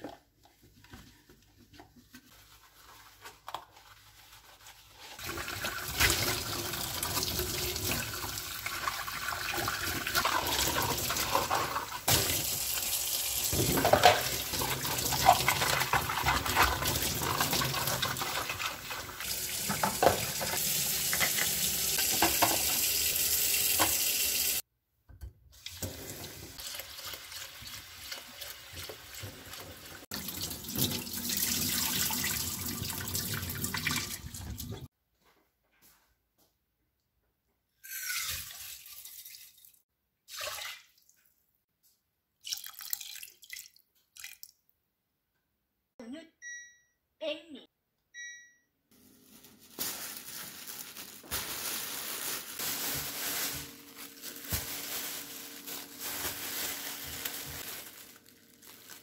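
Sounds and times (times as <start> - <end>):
water splashing over hands and dishes: 3.8 - 24.6, 25.6 - 34.9, 38.0 - 41.3, 49.6 - 59.0.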